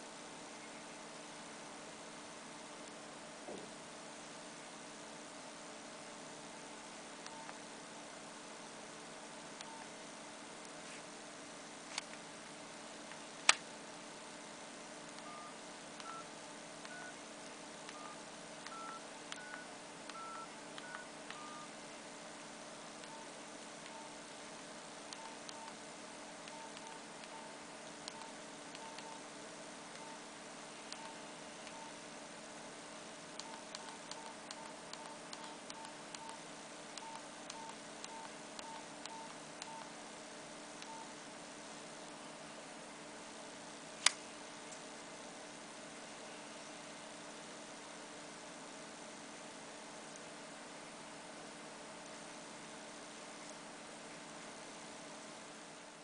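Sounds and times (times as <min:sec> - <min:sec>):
phone keypad beeps: 0:07.3 - 0:07.6, 0:15.2 - 0:16.3, 0:16.9 - 0:17.2, 0:17.9 - 0:21.7, 0:23.9 - 0:24.2, 0:25.2 - 0:25.8, 0:26.5 - 0:29.2, 0:30.0 - 0:30.2, 0:31.0 - 0:31.9, 0:33.4 - 0:36.4, 0:37.0 - 0:39.9, 0:40.8 - 0:41.1
sharp click: 0:44.0 - 0:44.8.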